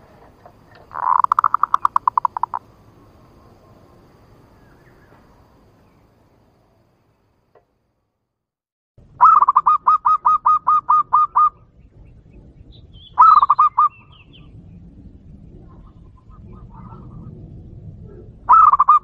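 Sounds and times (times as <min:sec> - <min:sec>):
dove coo call through speaker: 0:00.9 - 0:02.6, 0:09.2 - 0:11.6, 0:13.2 - 0:14.0, 0:18.1 - 0:19.0.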